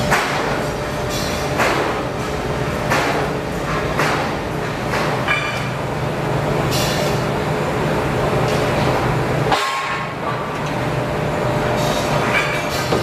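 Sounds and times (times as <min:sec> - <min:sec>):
workshop machinery hum: 0:00.0 - 0:13.0
steel strips clanking and scraping: 0:11.8 - 0:13.0.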